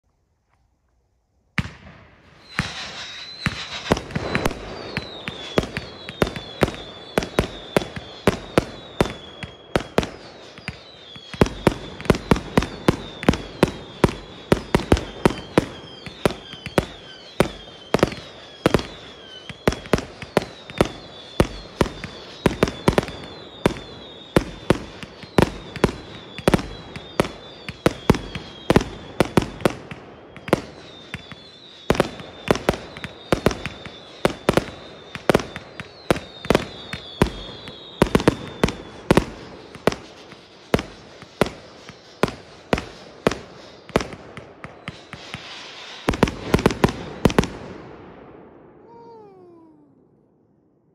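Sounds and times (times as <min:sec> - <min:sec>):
firework launch thumps and bangs: 0:01.6 - 0:08.4
falling firework whistles: 0:01.6 - 0:49.9.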